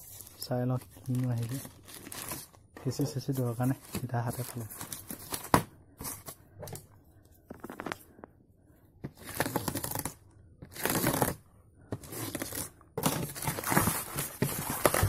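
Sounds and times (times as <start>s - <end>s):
plastic packaging rustling and tearing: 0.0s - 6.4s, 7.6s - 8.0s, 12.0s - 15.0s.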